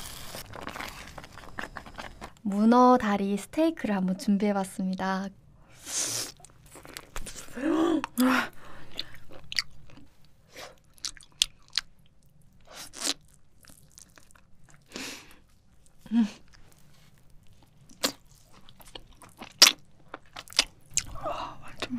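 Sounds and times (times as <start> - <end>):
biting and chewing: 0.0 - 2.4, 16.5 - 21.2.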